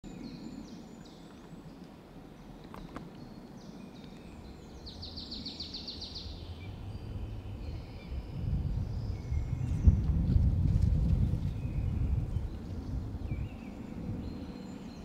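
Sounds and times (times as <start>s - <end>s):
songbirds singing: 0.0s - 15.0s
low rumble: 6.4s - 14.3s.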